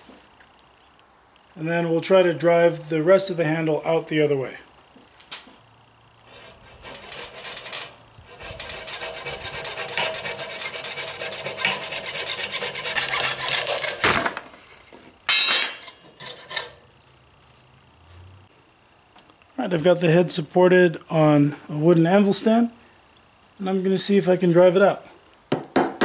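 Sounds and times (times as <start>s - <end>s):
saw cutting wood: 6.3s - 14.1s, 16.2s - 16.8s
scraping bursts: 6.3s - 14.1s.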